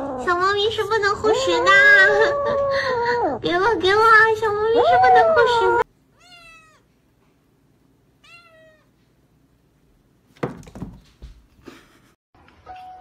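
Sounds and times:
cat meowing: 0:06.1 - 0:06.9, 0:08.2 - 0:08.9
thumps on cat tree: 0:10.4 - 0:11.5.

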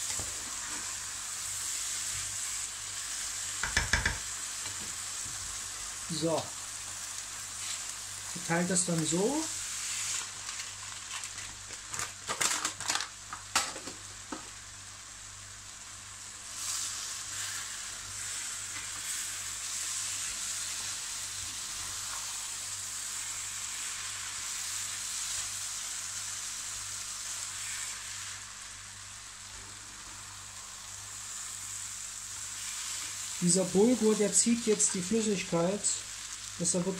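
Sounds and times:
spatula stirring in pan: 0:00.0 - 0:06.0, 0:16.5 - 0:28.7
food sizzling in oil: 0:00.0 - 0:36.9.

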